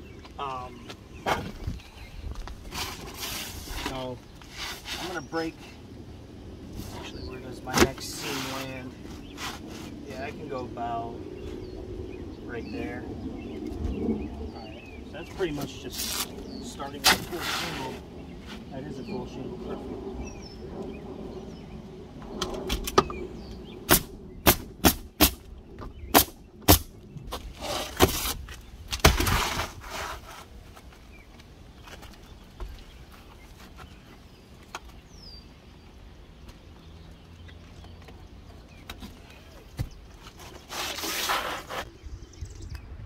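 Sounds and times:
shingles scraping: 2.5s - 5.2s, 15.3s - 18.6s, 26.1s - 31.0s, 40.2s - 41.9s
pneumatic nailer shots: 23.9s - 25.4s, 26.1s - 26.9s.

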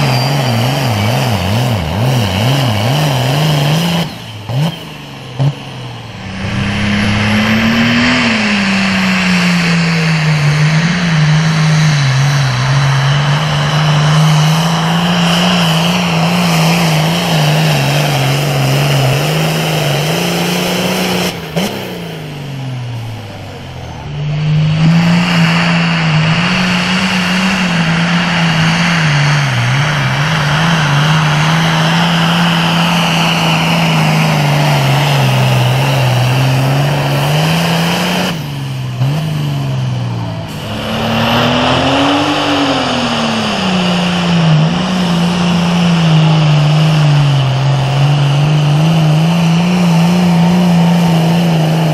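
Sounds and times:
tractor diesel engine under load: 0.0s - 51.9s.

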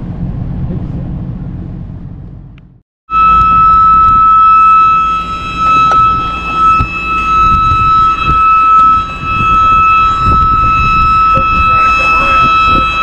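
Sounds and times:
high-pitched warning alarm tone: 3.1s - 13.0s.

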